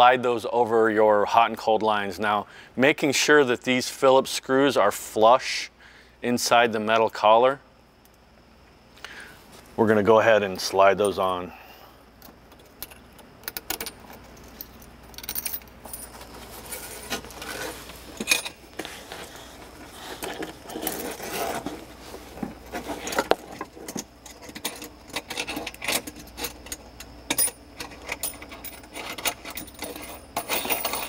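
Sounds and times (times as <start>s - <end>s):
small metal parts clinking: 12.5s - 19.3s, 22.7s - 31.0s.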